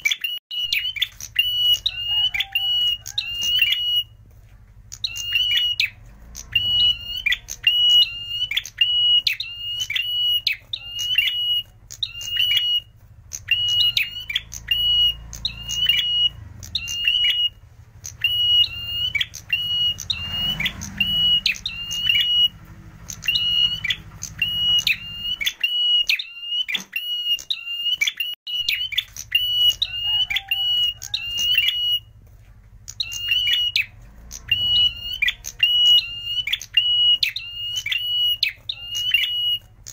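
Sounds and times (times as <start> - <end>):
bird singing shrill notes: 0.0 - 32.2, 32.8 - 39.9.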